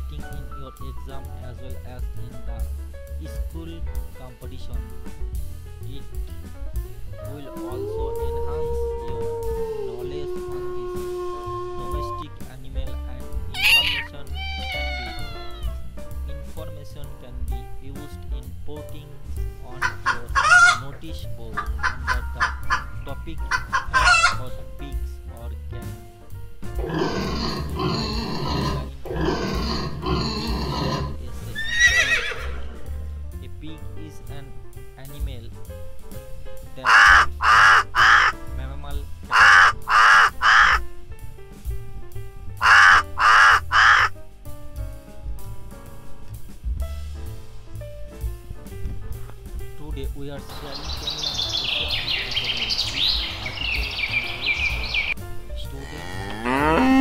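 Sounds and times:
birds chirping and chattering: 7.2s - 12.3s, 13.2s - 15.8s, 19.4s - 24.6s, 26.8s - 32.5s, 36.8s - 40.9s, 42.6s - 44.1s, 50.3s - 57.0s
cow mooing: 7.3s - 12.2s, 26.8s - 32.7s, 55.6s - 57.0s
pigs squealing: 7.3s - 12.2s, 13.5s - 15.8s, 19.8s - 20.9s, 21.6s - 24.5s, 26.8s - 32.8s, 36.8s - 38.4s, 39.3s - 40.8s, 42.6s - 44.1s, 55.8s - 57.0s
horse whinnying: 13.6s - 15.8s, 26.8s - 32.8s.

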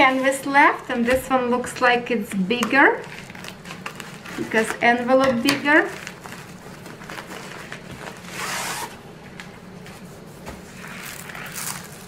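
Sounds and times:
packaging rustling: 3.0s - 12.0s.

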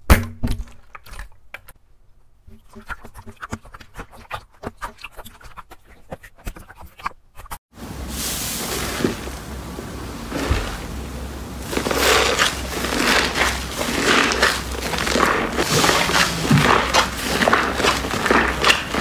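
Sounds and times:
foamy slime crackling hiss: 7.8s - 19.0s.

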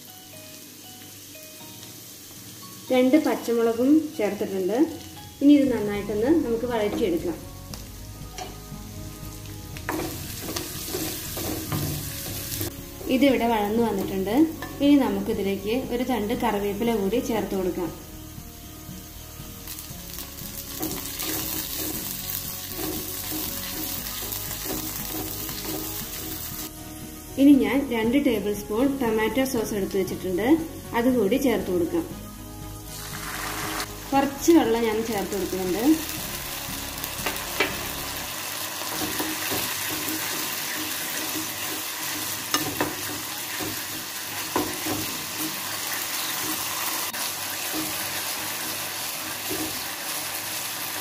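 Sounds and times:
leaves and garlic sizzling in oil: 0.0s - 51.0s
spatula stirring: 9.9s - 12.8s, 20.6s - 26.7s.

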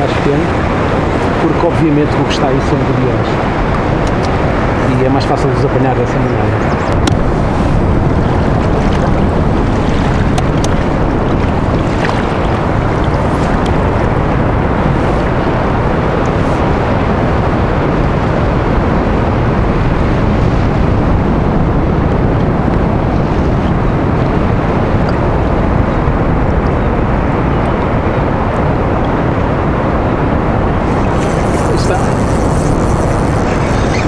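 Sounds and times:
water slapping kayak: 0.0s - 34.0s
wind on microphone: 0.0s - 34.0s.

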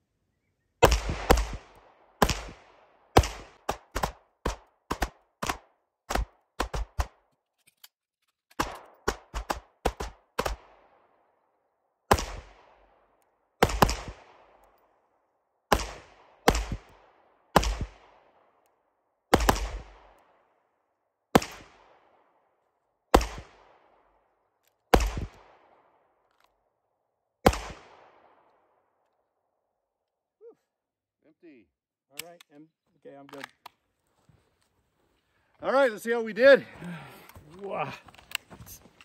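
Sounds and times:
handgun shots echoing: 8.6s - 10.8s, 13.6s - 14.8s, 27.4s - 28.6s.

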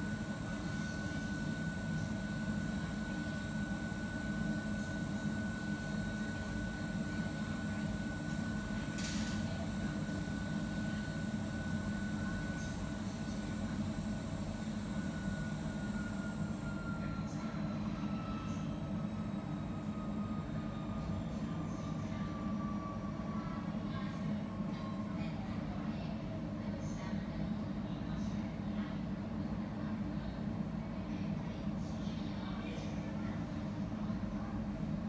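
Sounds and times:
kitchen machinery hum: 0.0s - 26.3s.

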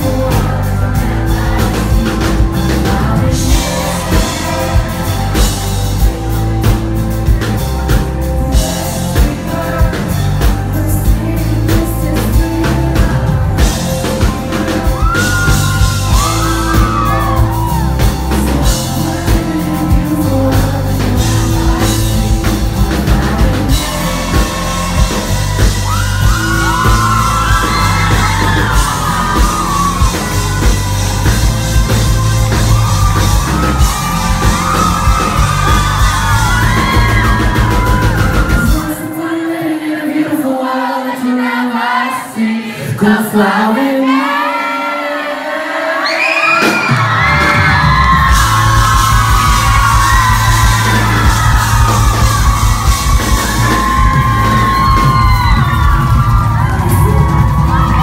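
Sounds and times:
crowd whooping and screaming: 0.0s - 10.2s, 12.0s - 39.6s, 43.9s - 58.0s
live pop-rock band playing: 0.0s - 40.5s, 46.0s - 58.0s.

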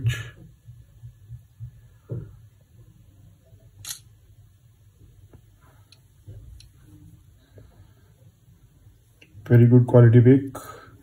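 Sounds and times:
camera shutter click: 3.8s - 4.1s.

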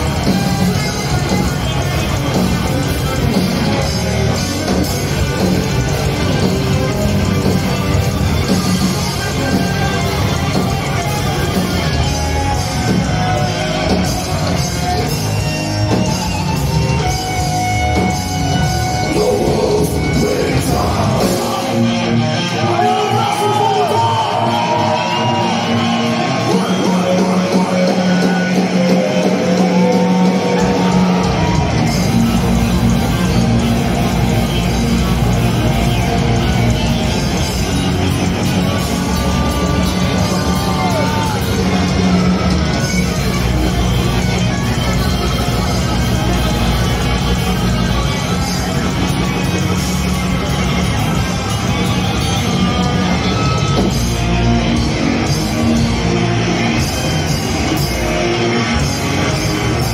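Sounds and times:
heavy metal band playing: 0.0s - 59.9s
shouted vocals: 18.9s - 49.9s.

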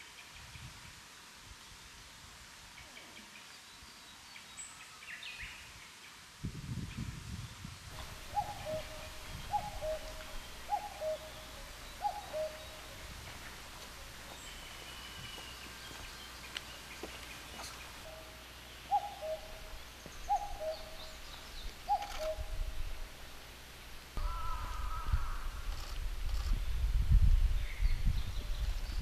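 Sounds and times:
small birds chirping: 7.4s - 23.1s
cuckoo calling: 8.0s - 22.9s.

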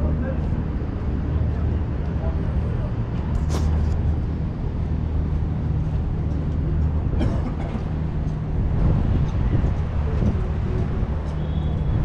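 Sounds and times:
low engine hum: 0.0s - 12.0s
street noise: 0.0s - 12.0s.

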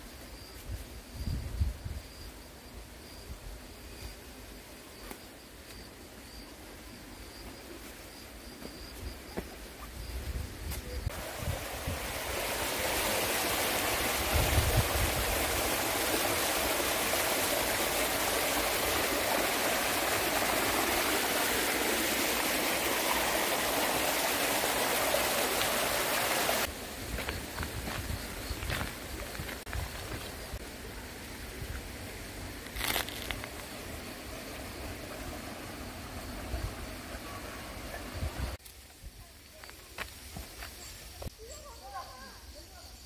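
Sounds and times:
high insect trill: 0.0s - 11.5s, 26.6s - 30.7s
waterfall rushing into pool: 11.1s - 26.8s.

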